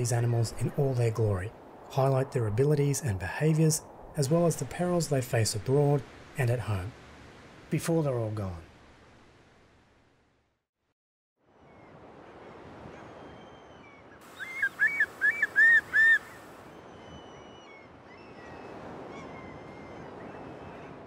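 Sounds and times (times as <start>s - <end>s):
water and wind wash: 0.0s - 10.4s, 11.4s - 21.0s
faint shorebird whistles: 13.1s - 21.0s
curlew calling: 13.2s - 21.0s.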